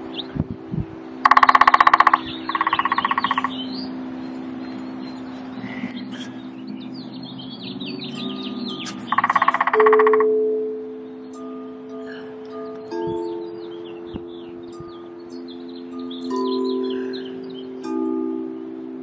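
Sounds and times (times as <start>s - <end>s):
songbirds chirping: 0.0s - 19.0s
woodpecker drumming: 1.2s - 6.4s, 7.6s - 10.4s.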